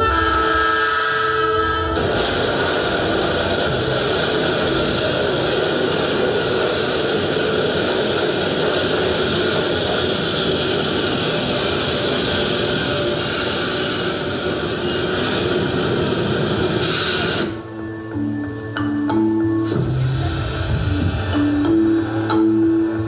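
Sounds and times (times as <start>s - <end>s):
train rumbling on rails: 0.0s - 17.8s
thin wheel squeal: 11.3s - 15.8s.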